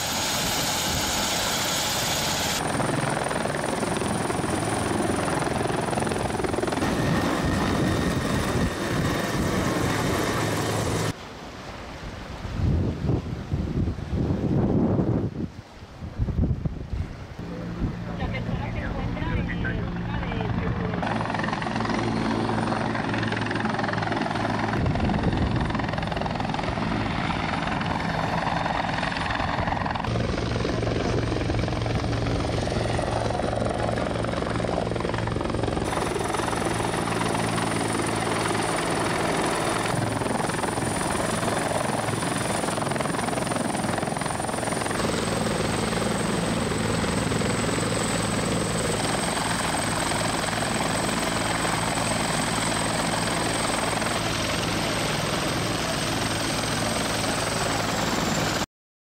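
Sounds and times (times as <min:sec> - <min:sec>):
helicopter rotor blades beating: 0:00.0 - 0:11.2, 0:17.4 - 0:58.6
high turbine whine: 0:00.0 - 0:11.2, 0:17.4 - 0:58.6.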